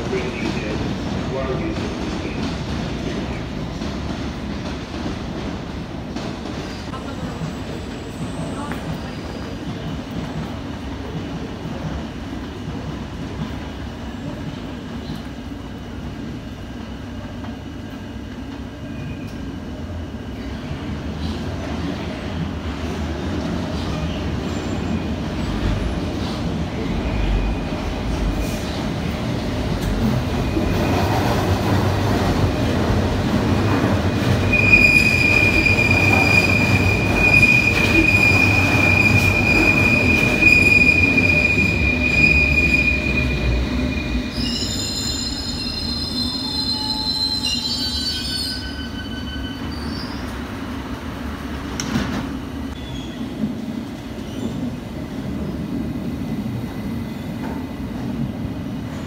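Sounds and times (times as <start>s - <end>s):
train wheels rumbling on track: 0.0s - 59.0s
high-pitched brake squeal: 34.4s - 50.3s.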